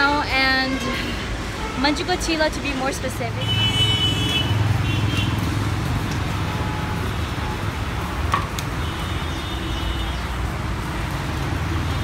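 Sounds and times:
city road traffic rumble: 0.0 - 12.0
car horn: 3.4 - 5.4.

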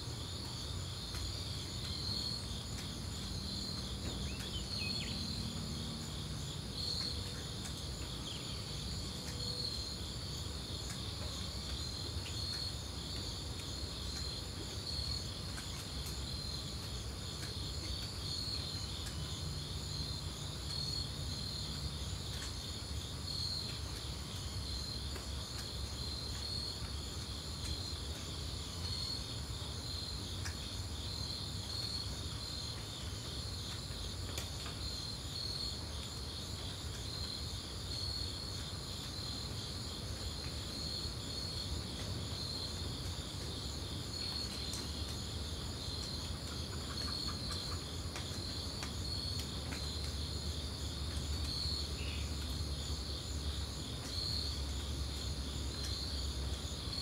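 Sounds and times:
night insects trilling: 0.0 - 57.0.

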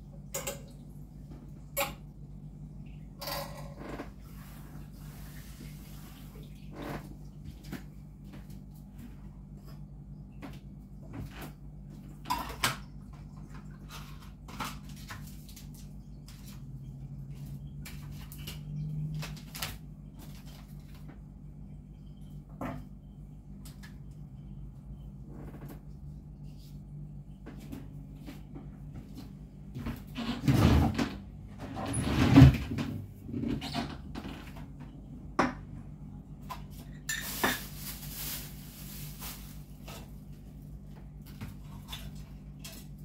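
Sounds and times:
dishes knocking and clinking: 1.7 - 2.1.

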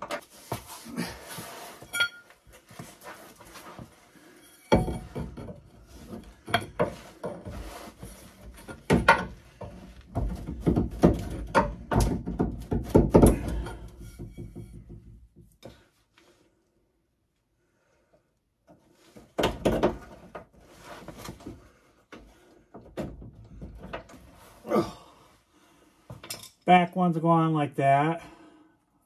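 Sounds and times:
car parts knocking and clunking: 4.7 - 7.5, 8.5 - 15.7, 19.2 - 20.5, 22.2 - 24.2.

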